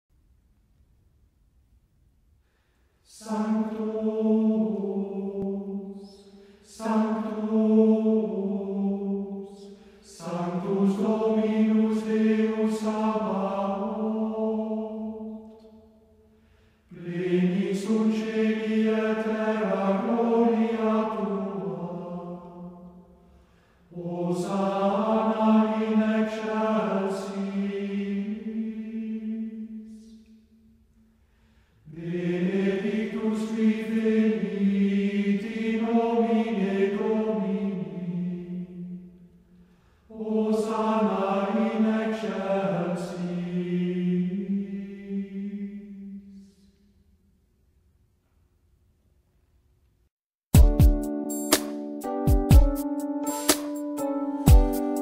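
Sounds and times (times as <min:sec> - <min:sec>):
person singing a hymn unaccompanied: 0:03.0 - 0:15.9, 0:16.9 - 0:23.2, 0:23.8 - 0:30.5, 0:31.8 - 0:39.4, 0:40.1 - 0:47.0.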